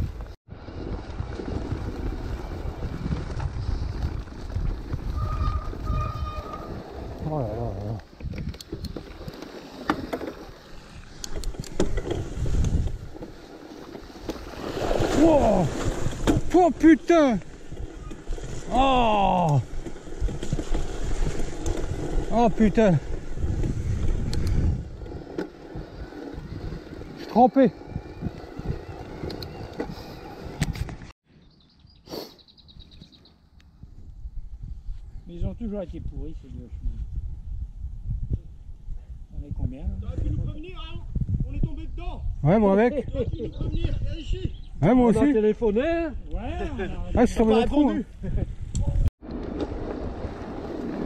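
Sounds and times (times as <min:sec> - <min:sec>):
bike rattles and knocks: 0:00.0 - 0:18.8
wind and tyre noise: 0:00.0 - 0:51.0
bike knocks and rattles: 0:11.2 - 0:14.4.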